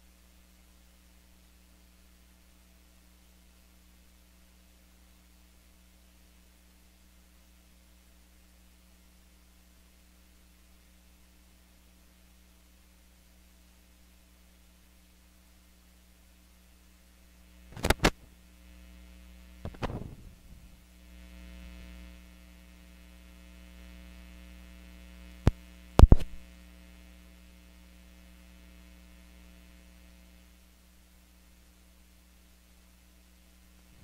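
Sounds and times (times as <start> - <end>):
electrical mains hum: 0.0 - 34.0
crackle: 17.6 - 30.2
loud sharp clicks: 26.0 - 26.4.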